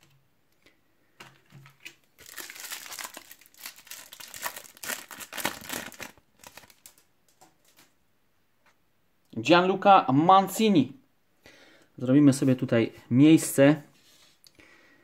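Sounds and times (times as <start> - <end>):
foil wrapper crinkling and tearing: 2.2 - 7.9.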